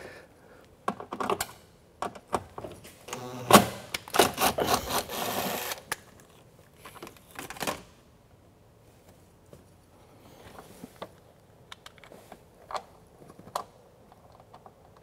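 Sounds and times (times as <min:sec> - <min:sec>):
cordless drill driving bolt: 0:03.1 - 0:05.8.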